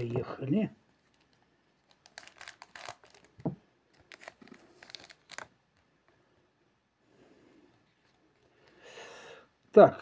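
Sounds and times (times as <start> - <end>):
wrapper crinkling and tearing: 1.0 - 5.6.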